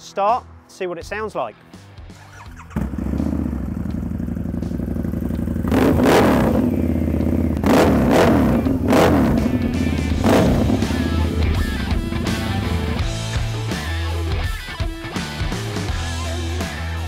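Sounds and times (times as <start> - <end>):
motorcycle engine revving: 2.2 - 14.6.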